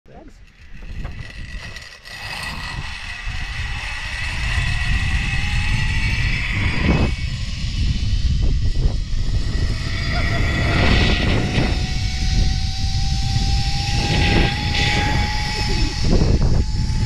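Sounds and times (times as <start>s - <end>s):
wind rumble on microphone: 0.1s - 17.0s
pulley wheels whirring on cable: 0.2s - 17.0s.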